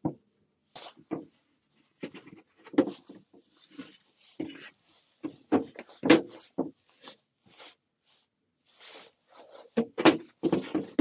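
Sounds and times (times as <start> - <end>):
wooden boards knocking and scraping: 4.4 - 6.8, 9.8 - 11.0.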